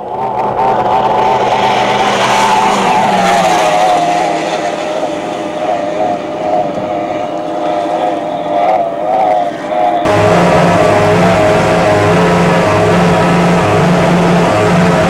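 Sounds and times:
boat engine high whine: 0.0 - 15.0.

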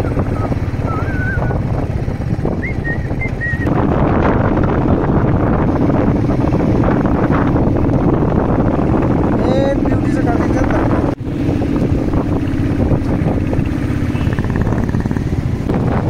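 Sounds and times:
motorcycle engine running: 0.0 - 16.0
wind buffeting microphone: 0.0 - 16.0.

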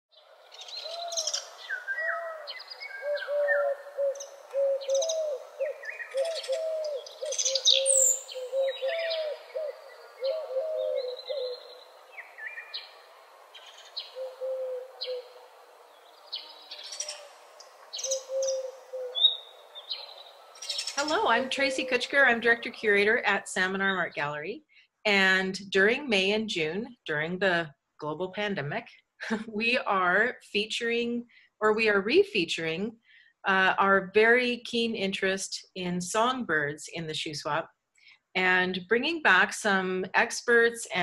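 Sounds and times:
birds chirping and trilling: 0.1 - 24.5.

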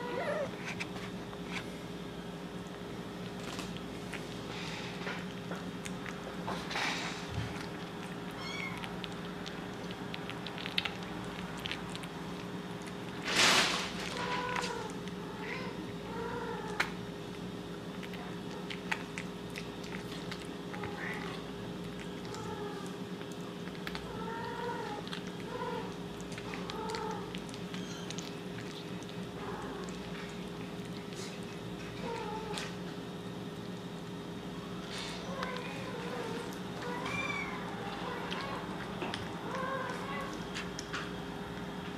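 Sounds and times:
kitten mewing: 0.0 - 0.6, 8.3 - 9.0
kitten chewing wet food: 0.0 - 41.9
steady low hum: 0.0 - 41.9.

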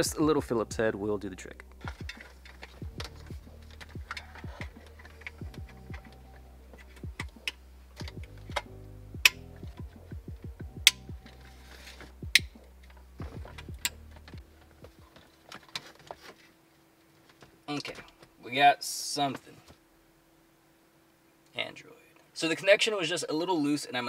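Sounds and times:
background music: 0.0 - 16.1.

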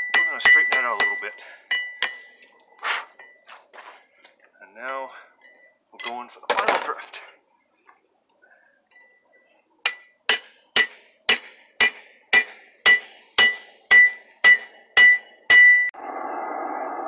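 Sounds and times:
hammer striking metal ringing: 0.0 - 3.3, 9.8 - 16.0.

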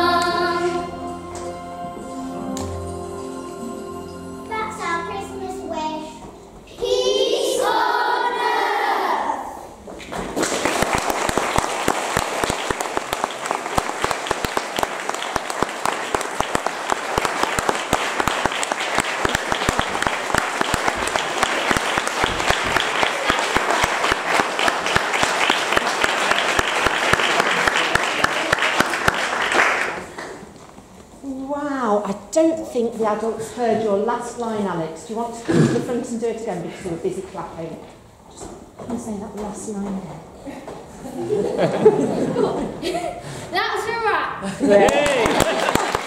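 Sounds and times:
children singing: 0.0 - 4.5, 6.7 - 9.5
audience clapping: 10.0 - 30.6, 44.8 - 46.0.

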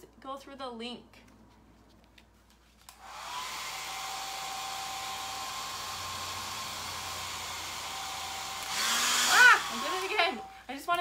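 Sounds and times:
hair dryer blowing: 2.9 - 10.6.

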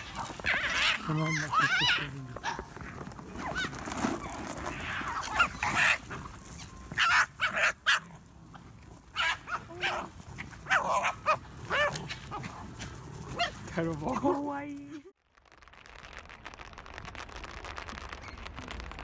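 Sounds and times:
foxes yipping and whining: 0.0 - 13.7.

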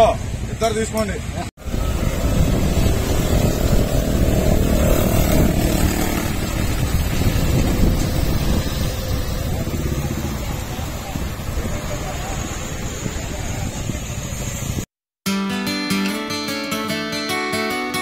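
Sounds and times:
road traffic: 0.0 - 14.9
small truck engine driving off: 1.6 - 14.8.

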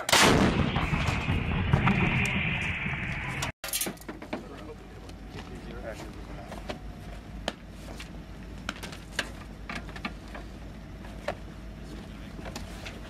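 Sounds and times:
steady low rumble: 0.2 - 3.6.

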